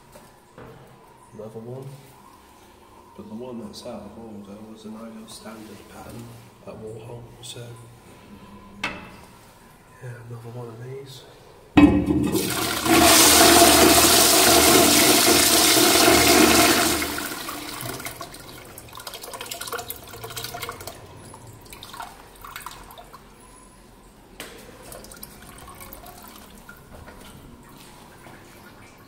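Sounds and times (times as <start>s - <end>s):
toilet flushing: 11.8s - 23.2s
water trickling: 13.2s - 23.5s, 24.7s - 29.0s.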